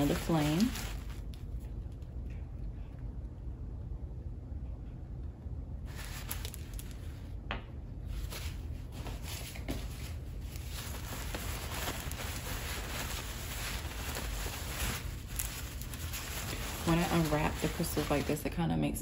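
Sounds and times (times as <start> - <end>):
packing wrap crinkling: 0.0 - 2.2, 5.9 - 7.3, 8.1 - 18.6.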